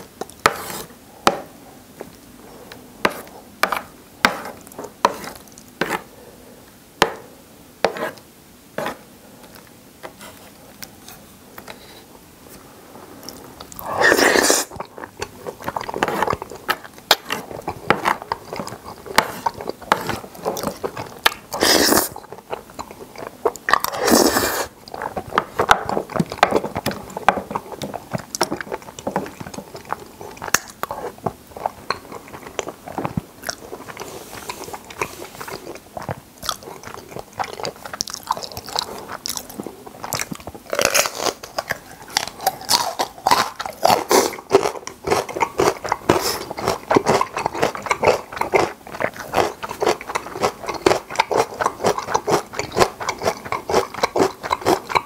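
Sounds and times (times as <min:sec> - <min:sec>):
wet chewing and mouth clicks: 0:13.2 - 0:55.0
slurping noodles: 0:13.8 - 0:14.9, 0:17.2 - 0:22.2, 0:23.8 - 0:25.8.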